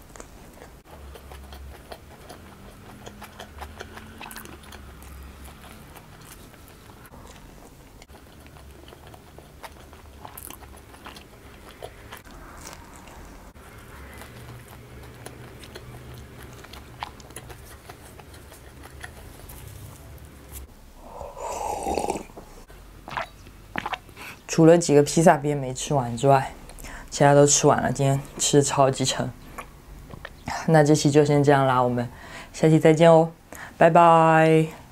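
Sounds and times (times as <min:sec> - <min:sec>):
person chewing food: 0:00.0 - 0:24.4, 0:29.4 - 0:30.4.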